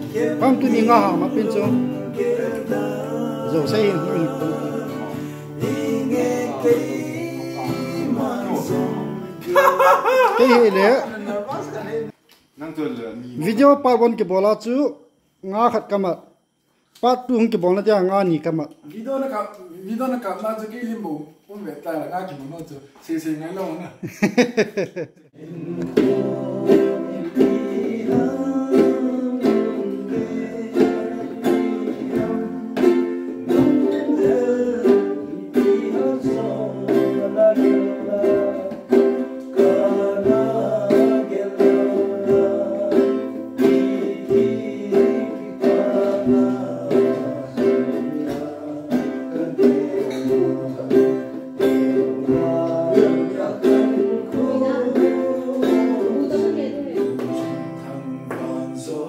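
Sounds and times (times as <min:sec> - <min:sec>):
ukulele strumming: 0:00.0 - 0:09.6, 0:25.5 - 0:59.0
man singing: 0:00.0 - 0:11.0, 0:25.4 - 0:59.0
acoustic guitar strumming: 0:00.0 - 0:23.7, 0:25.4 - 0:59.0
hand drum: 0:25.6 - 0:58.6.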